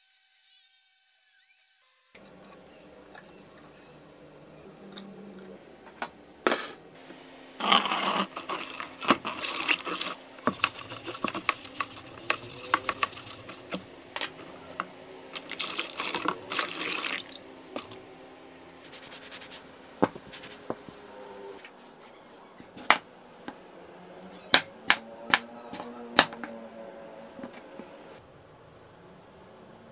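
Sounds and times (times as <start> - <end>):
brush scrubbing blade: 7.6 - 13.8
water spray hissing: 7.7 - 13.9, 15.4 - 17.5.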